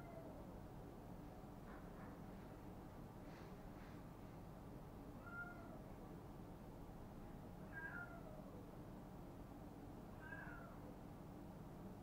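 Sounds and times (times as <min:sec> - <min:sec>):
cat meowing faintly: 0:05.2 - 0:05.9, 0:07.6 - 0:08.6, 0:10.2 - 0:10.9.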